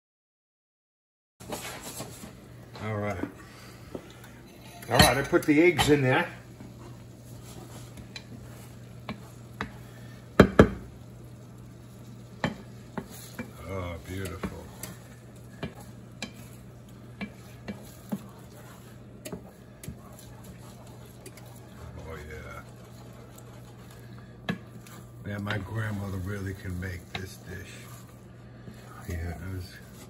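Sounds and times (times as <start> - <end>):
eggs sizzling in a frying pan: 1.4 - 30.0
wooden spatula tapping a pan: 10.4 - 10.9, 12.4 - 13.6, 15.6 - 16.5.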